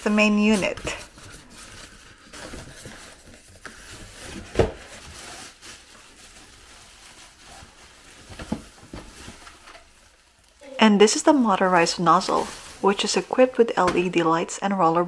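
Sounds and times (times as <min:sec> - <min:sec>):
styrofoam rubbing and scraping: 0:00.0 - 0:08.3, 0:11.5 - 0:13.6
plastic bag crinkling: 0:00.0 - 0:13.8.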